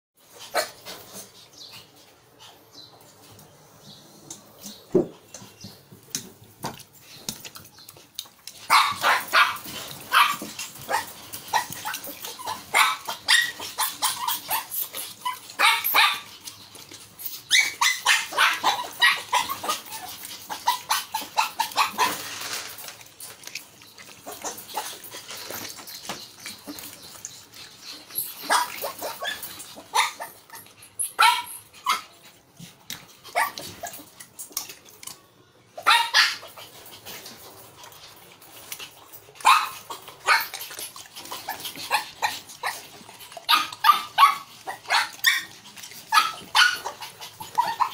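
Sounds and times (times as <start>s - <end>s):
dog barking and yipping: 8.6s - 16.4s, 17.4s - 22.4s, 28.2s - 32.1s, 33.3s - 34.1s, 35.8s - 36.7s, 39.4s - 40.8s, 41.4s - 47.9s.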